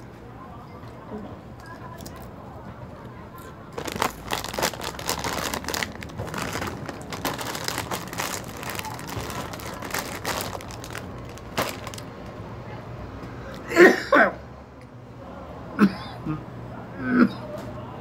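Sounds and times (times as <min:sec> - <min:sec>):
plastic bag crinkling: 0:03.7 - 0:12.3.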